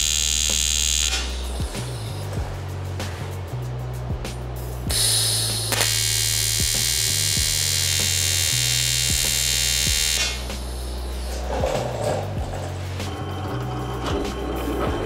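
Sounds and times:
welding arc buzzing: 0.0s - 2.2s, 4.9s - 11.2s.

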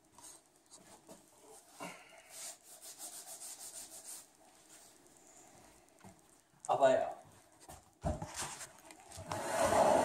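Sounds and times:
quick rhythmic rubbing: 2.3s - 4.4s.

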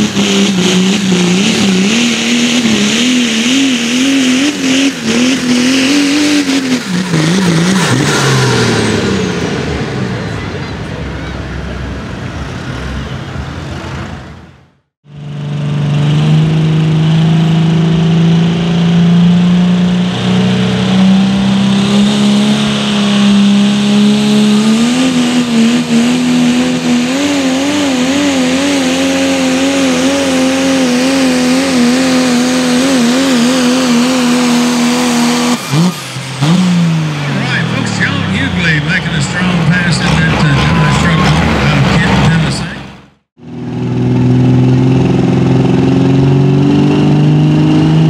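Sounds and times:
diesel truck engine at full throttle: 0.0s - 48.0s.

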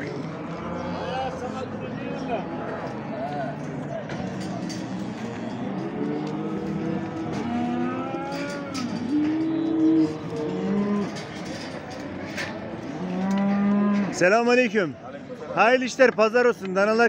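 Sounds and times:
cattle mooing: 5.5s - 11.5s, 12.8s - 14.2s.

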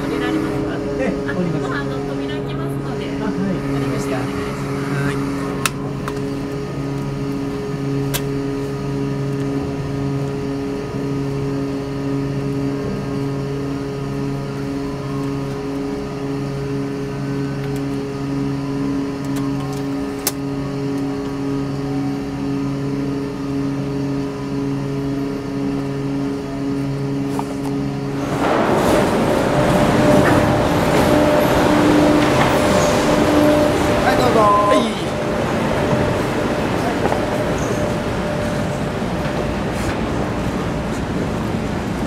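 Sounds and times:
ship engines droning: 0.0s - 42.0s.

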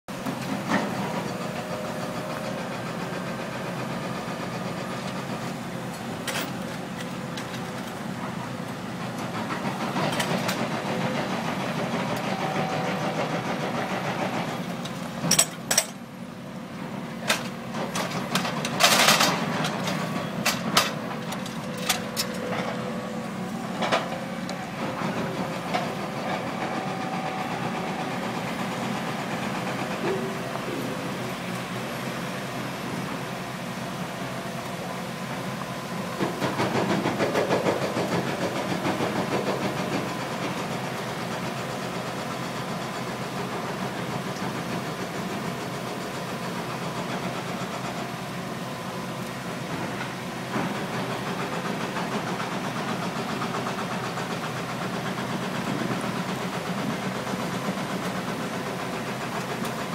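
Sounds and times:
metallic clanks and knocks: 15.2s - 16.0s
machine engine running: 16.7s - 46.0s.

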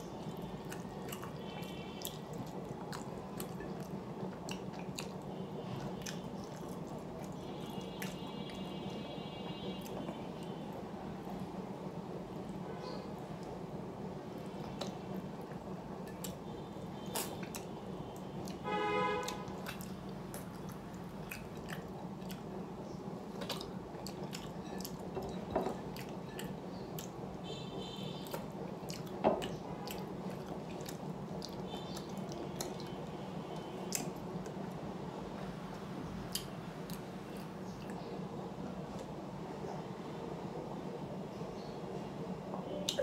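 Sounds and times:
steady background hum: 0.0s - 43.0s
chewing and wet mouth clicks: 0.6s - 5.2s, 5.8s - 8.2s, 14.7s - 16.4s, 17.1s - 17.7s, 19.2s - 22.5s, 23.4s - 25.1s, 25.9s - 27.2s, 28.2s - 33.0s, 33.6s - 34.6s, 35.7s - 38.1s.

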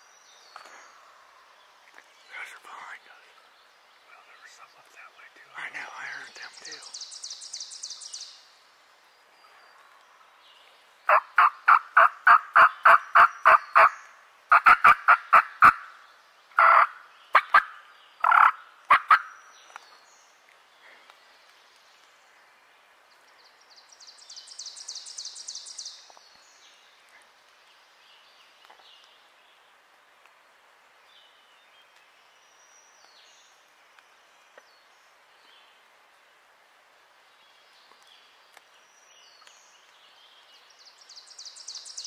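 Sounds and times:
songbird trill: 0.0s - 14.2s, 15.7s - 29.6s, 37.3s - 42.0s.

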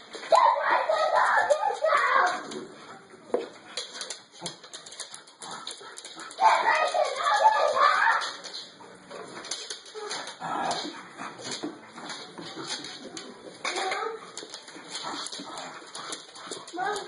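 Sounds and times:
scuffling and clicking: 3.4s - 17.0s.

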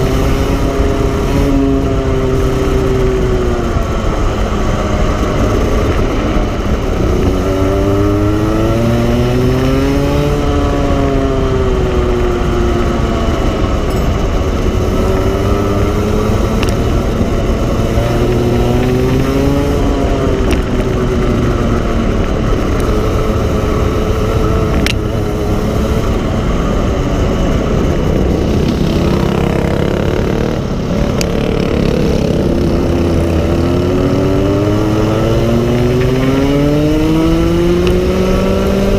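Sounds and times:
go-kart engine revving: 0.0s - 38.9s.

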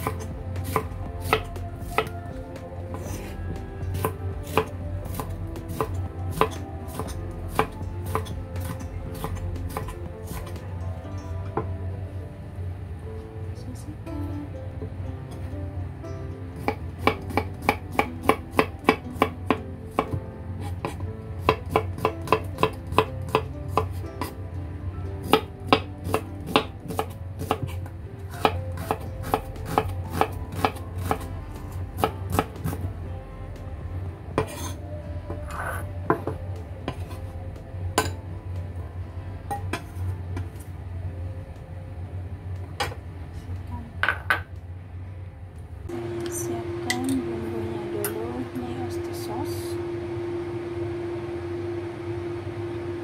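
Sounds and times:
knife chopping on cutting board: 28.4s - 31.2s.

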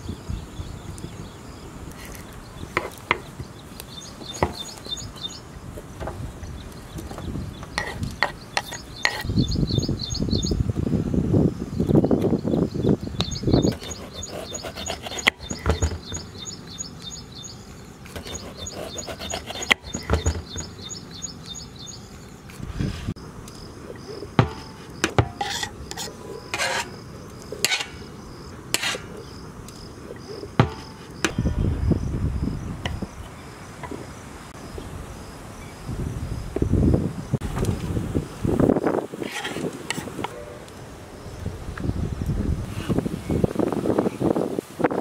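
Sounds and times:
insects chirping: 0.0s - 42.4s
knife scraping across board: 7.8s - 9.3s, 13.6s - 16.3s, 18.1s - 20.8s, 24.4s - 27.0s, 27.6s - 28.0s, 28.7s - 29.2s, 39.2s - 40.4s
knife chopping on wooden board: 13.7s - 16.3s, 18.2s - 20.8s, 24.4s - 26.9s, 30.6s - 31.4s.

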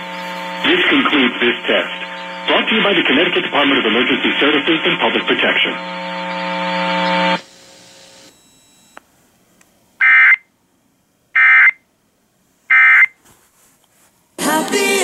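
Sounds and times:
radio programming: 0.0s - 8.8s, 14.4s - 15.0s.

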